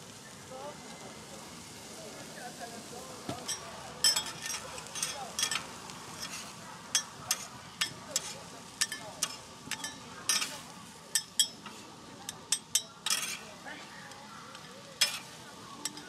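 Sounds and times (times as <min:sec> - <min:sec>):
food sizzling on hot plate: 0:00.0 - 0:16.0
metal spatulas scraping griddle: 0:03.3 - 0:13.9, 0:14.5 - 0:16.0.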